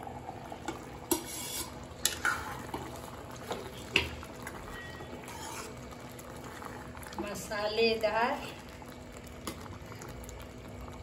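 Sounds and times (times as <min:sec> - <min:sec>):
spoon stirring and scraping pan: 0:00.7 - 0:06.0.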